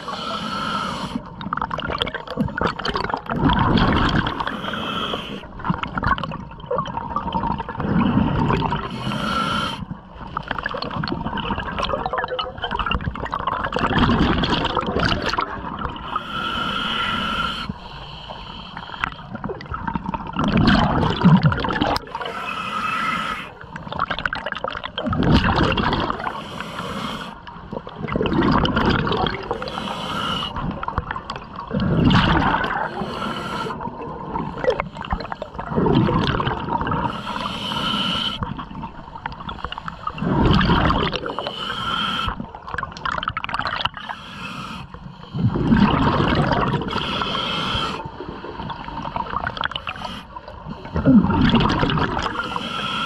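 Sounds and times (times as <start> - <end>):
regulator breathing hiss: 0.0 - 1.2, 4.5 - 5.4, 8.9 - 9.8, 16.1 - 19.2, 22.2 - 23.6, 26.3 - 27.4, 29.5 - 30.6, 32.8 - 33.8, 37.1 - 38.4, 41.3 - 42.4, 44.0 - 45.4, 46.9 - 48.1, 49.8 - 50.4, 52.3 - 53.0
exhaled bubbles rumbling: 1.2 - 9.0, 9.8 - 16.3, 19.0 - 22.3, 23.6 - 26.4, 27.4 - 29.8, 30.4 - 37.5, 38.4 - 41.7, 42.3 - 44.1, 45.2 - 52.6.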